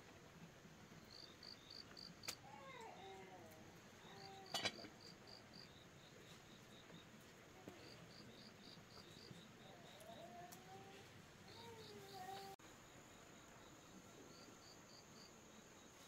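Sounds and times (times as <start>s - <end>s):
insects chirping: 1.0s - 2.4s, 3.9s - 7.2s, 7.8s - 10.8s, 11.4s - 16.0s
lower insect calls: 1.0s - 3.2s, 3.9s - 16.0s.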